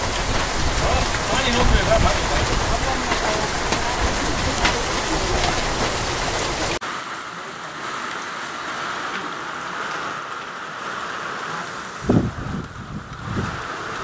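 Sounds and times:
floodwater rushing: 0:00.0 - 0:14.0
heavy rain pouring: 0:00.0 - 0:14.0
run-off streaming off roof: 0:00.0 - 0:14.0.

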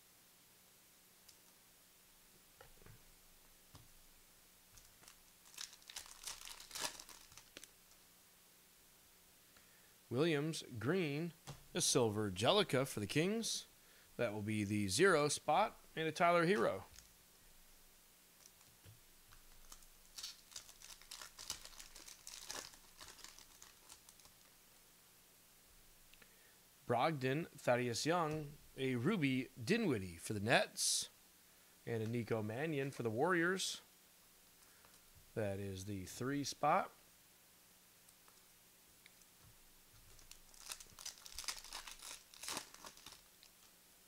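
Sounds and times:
wrapper tearing and crinkling: 0:04.8 - 0:07.7, 0:19.4 - 0:24.5, 0:40.1 - 0:43.7.

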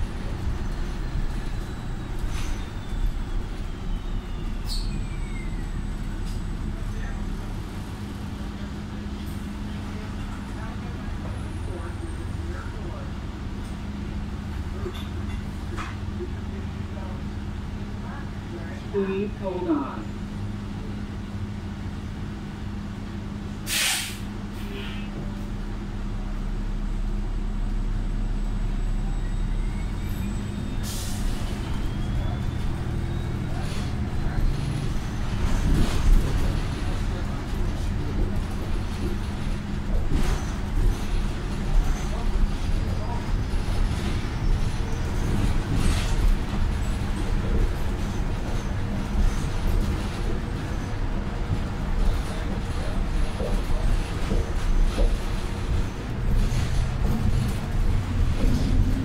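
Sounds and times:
bus drivetrain hum: 0:00.0 - 0:59.0
compressed air hiss: 0:23.7 - 0:24.3
brief hiss: 0:23.7 - 0:25.0.

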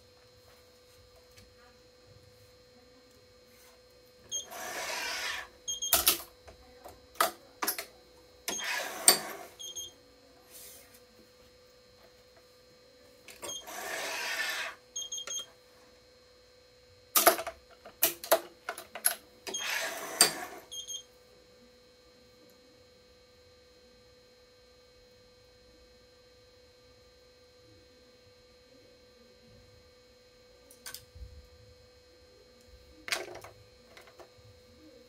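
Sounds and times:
faint steady hum: 0:00.0 - 0:35.0
stringing machine motor running: 0:04.3 - 0:06.0, 0:08.5 - 0:09.7, 0:13.4 - 0:14.8, 0:19.4 - 0:20.7
short electronic beeps: 0:05.7 - 0:06.0, 0:09.6 - 0:09.9, 0:15.0 - 0:15.5, 0:20.7 - 0:21.0.

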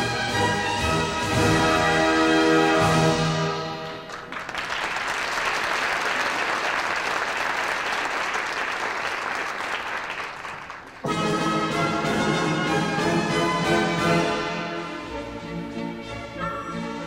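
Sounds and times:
orchestral music: 0:00.0 - 0:04.1, 0:11.0 - 0:17.0
audience applause: 0:03.8 - 0:11.1.

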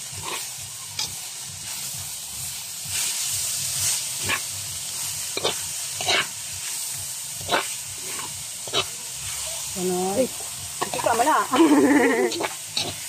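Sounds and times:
metal spatula scraping a pan: 0:00.0 - 0:01.7, 0:02.9 - 0:06.8, 0:07.4 - 0:09.7, 0:10.8 - 0:13.0
food sizzling in a wok: 0:00.0 - 0:13.0.

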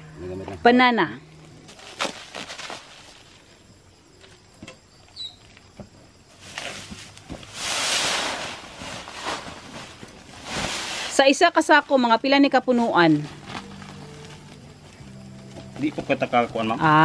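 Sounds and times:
salt pouring onto plastic tarp: 0:07.4 - 0:11.3.

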